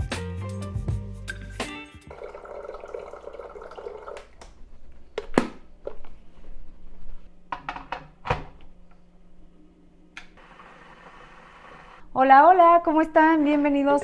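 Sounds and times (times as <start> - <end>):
tap water running: 2.0 - 4.4.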